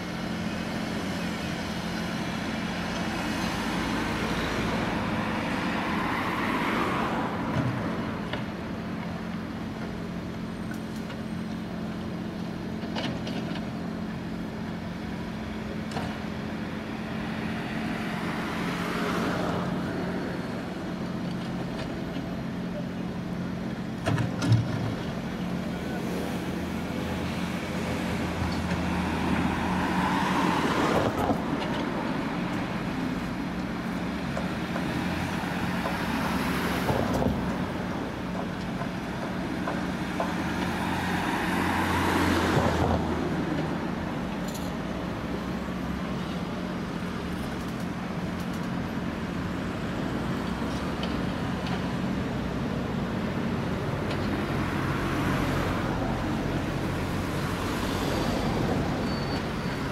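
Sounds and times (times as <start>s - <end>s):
excavator diesel engine running: 19.6s - 59.9s.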